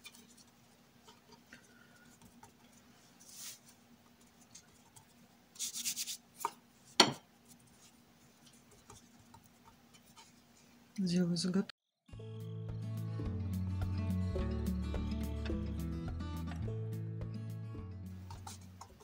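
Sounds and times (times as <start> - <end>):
patting dough: 0.0 - 10.8, 18.2 - 19.0
hands rubbing dough on board: 2.1 - 10.6, 18.2 - 19.0.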